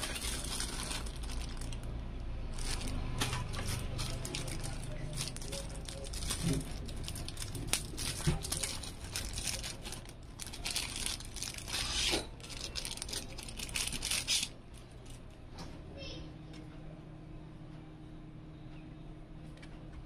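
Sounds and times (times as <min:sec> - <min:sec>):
plastic bag crinkling and tearing: 0:00.0 - 0:15.2.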